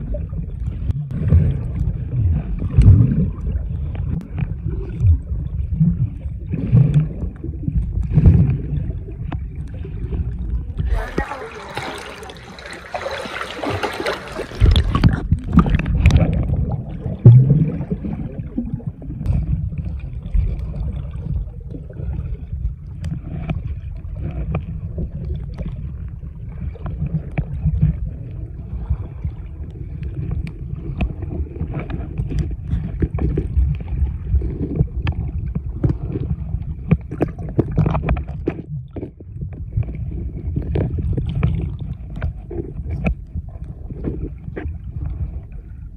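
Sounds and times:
water splashing: 0.0 - 43.1
muffled underwater rumble: 0.0 - 45.9
underwater clicks and knocks: 13.6 - 17.9, 29.6 - 45.4.

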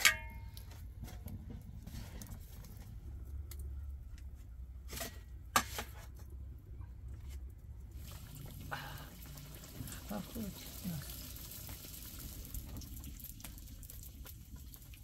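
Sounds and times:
low steady rumble: 0.0 - 11.5.

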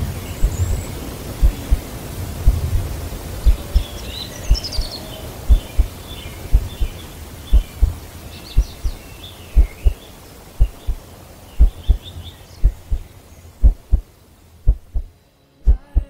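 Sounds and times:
faint bird chirps: 0.0 - 2.8, 3.4 - 16.0
heartbeat thumps: 0.4 - 0.8, 1.4 - 1.8, 2.4 - 2.8, 3.4 - 3.9, 4.5 - 4.9, 5.5 - 5.9, 6.5 - 8.0, 8.6 - 9.0, 9.6 - 10.0, 10.6 - 11.0, 11.6 - 12.0, 12.6 - 13.0, 13.6 - 14.0, 14.6 - 15.1, 15.7 - 16.0.

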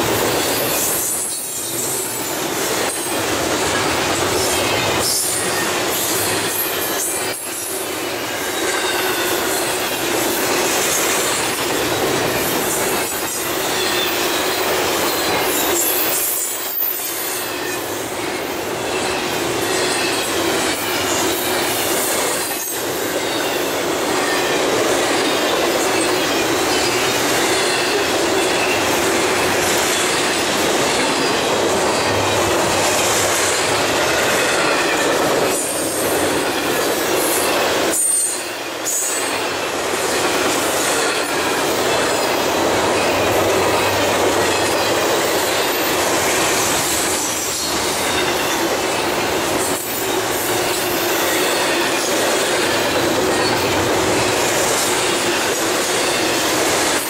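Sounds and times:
steel wheels rolling on rails: 0.0 - 57.0
high-pitched wheel squeal: 37.9 - 39.4.

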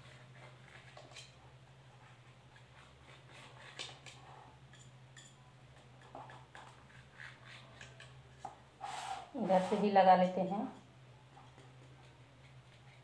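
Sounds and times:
knife cutting food: 2.5 - 8.5.

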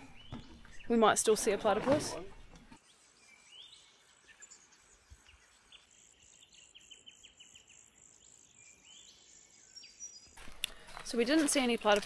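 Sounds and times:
high insect hum: 3.0 - 10.3.

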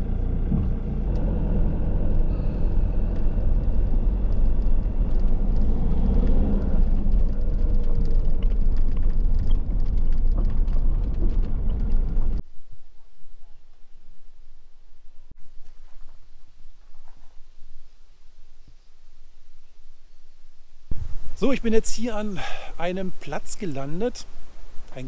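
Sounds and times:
van engine and road rumble: 0.0 - 12.4.

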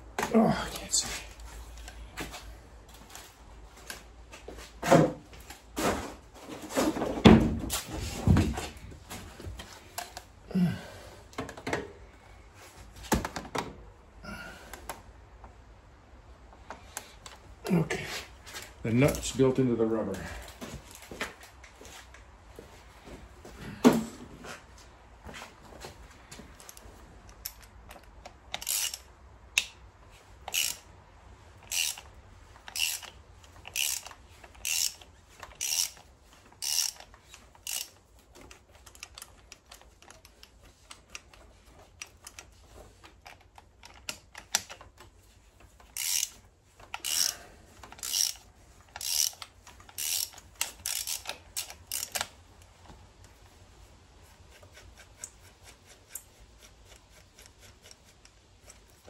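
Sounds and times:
ratchet wrench clicking: 26.7 - 29.8, 30.5 - 30.9, 31.6 - 38.0, 45.9 - 52.3.

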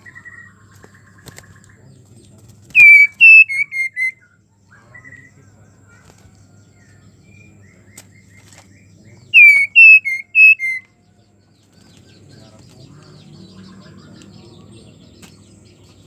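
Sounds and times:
bird whistled notes: 2.8 - 4.4, 9.3 - 10.9.

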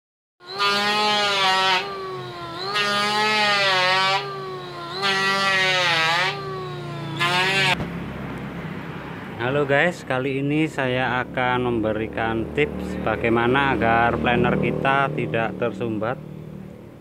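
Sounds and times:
electric planer shaving wood: 0.4 - 7.8.

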